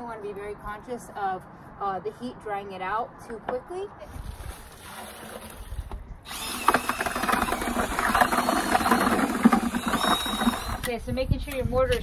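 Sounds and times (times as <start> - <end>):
dry mix pouring into bucket: 4.2 - 5.8
drill with paddle mixer: 6.3 - 11.0.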